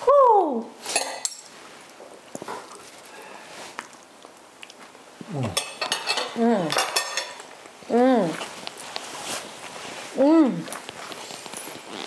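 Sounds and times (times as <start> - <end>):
cutlery clinking on plates: 0.8 - 1.5, 5.6 - 7.5
people humming mmm: 5.2 - 5.7.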